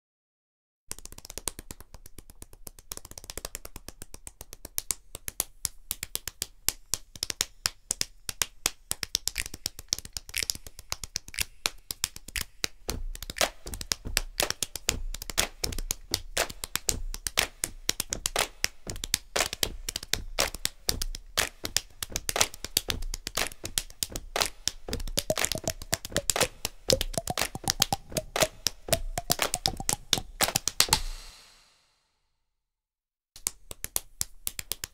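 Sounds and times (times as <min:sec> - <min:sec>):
rhythmic hand slaps on heads: 0:00.9 - 0:31.6, 0:33.4 - 0:34.9
low beat: 0:25.1 - 0:30.6.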